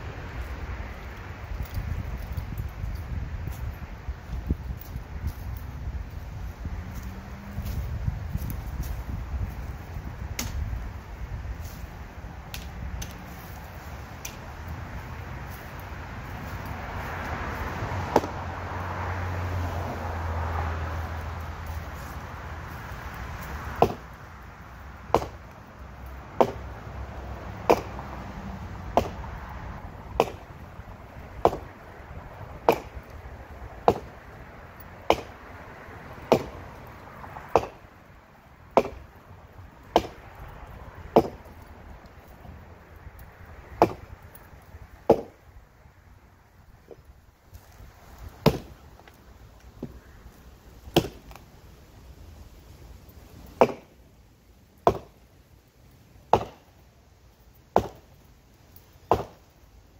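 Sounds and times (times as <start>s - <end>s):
axe chopping wood: 10.3s - 10.6s, 18.1s - 18.4s, 23.6s - 24.1s, 25.1s - 25.5s, 26.3s - 26.7s, 27.6s - 28.1s, 28.9s - 29.3s, 30.1s - 30.5s, 31.4s - 31.7s, 32.6s - 33.2s, 33.8s - 34.2s, 35.0s - 35.4s, 36.2s - 36.6s, 37.5s - 37.8s, 38.7s - 39.1s, 39.9s - 40.2s, 41.1s - 41.6s, 43.7s - 44.1s, 45.0s - 45.4s, 48.4s - 48.8s, 50.9s - 51.4s, 53.6s - 54.0s, 54.8s - 55.2s, 56.3s - 56.7s, 57.7s - 58.1s, 59.1s - 59.5s.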